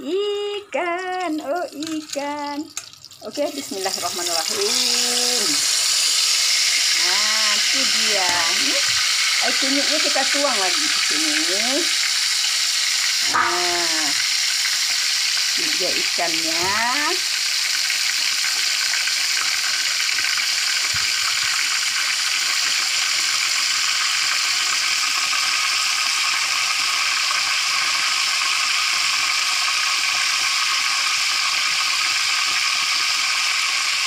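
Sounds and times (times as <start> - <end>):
hot oil sizzling: 0.0 - 34.0.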